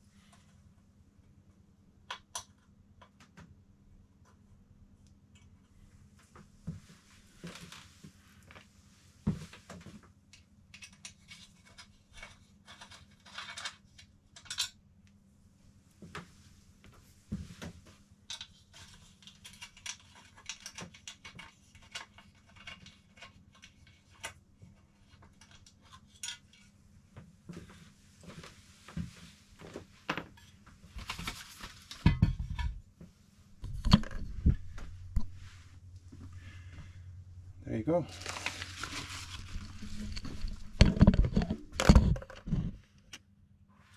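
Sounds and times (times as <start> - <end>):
knocks and bumps: 33.6 - 35.5.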